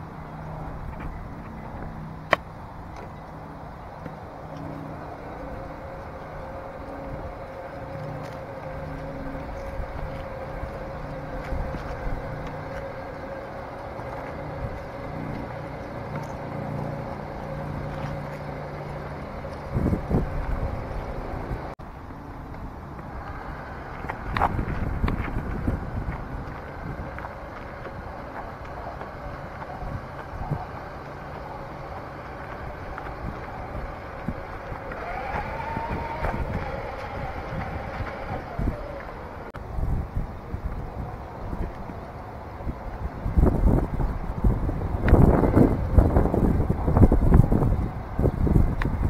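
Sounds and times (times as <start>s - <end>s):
tyres rumbling on gravel: 0.0s - 49.0s
electric motor and gearbox whining: 0.2s - 21.8s, 22.8s - 39.6s.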